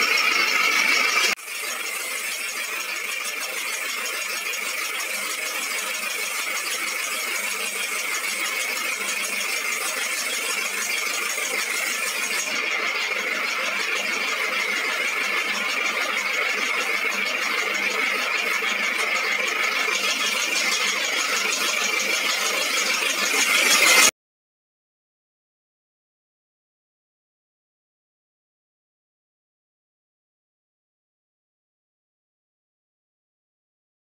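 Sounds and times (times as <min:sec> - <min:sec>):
pressure washer spraying water: 0:05.1 - 0:12.5.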